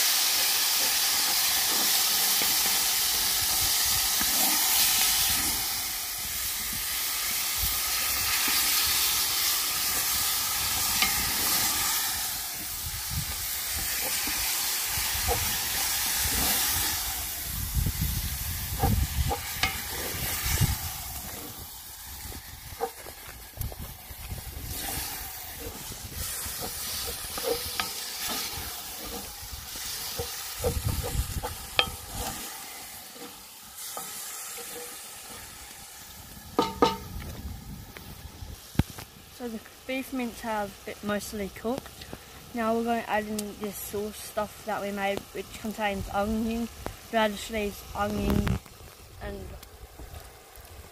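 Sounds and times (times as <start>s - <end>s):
meat sizzling in a pot: 0.0s - 50.9s
wooden spoon scraping a pot: 24.6s - 35.6s.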